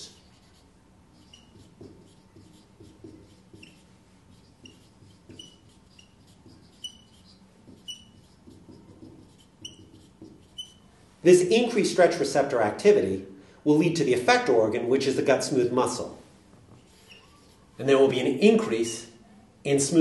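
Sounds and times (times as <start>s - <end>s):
marker squeaking on whiteboard: 0.0s - 11.0s, 16.7s - 18.2s.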